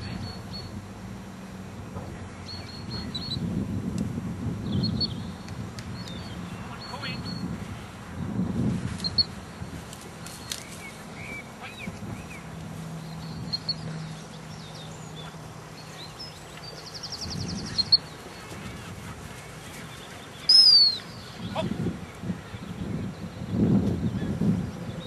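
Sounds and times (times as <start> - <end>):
birds chirping: 0.0 - 3.7, 4.6 - 8.3, 8.9 - 25.0
bird trill: 20.0 - 21.6
loud high whistle: 20.5 - 21.0.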